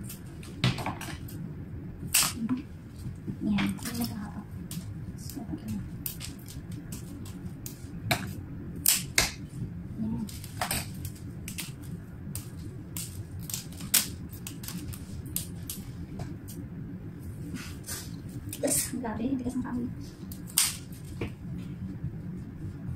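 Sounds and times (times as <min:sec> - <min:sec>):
low background rumble: 0:00.0 - 0:22.9
leaves snapping off stems: 0:02.1 - 0:02.5, 0:03.7 - 0:09.4, 0:10.2 - 0:15.8, 0:20.3 - 0:21.1.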